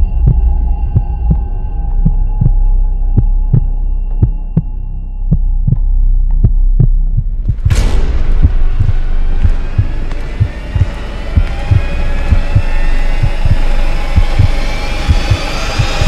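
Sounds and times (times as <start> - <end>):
heartbeat thumps: 0.0 - 16.0
low drone: 0.0 - 16.0.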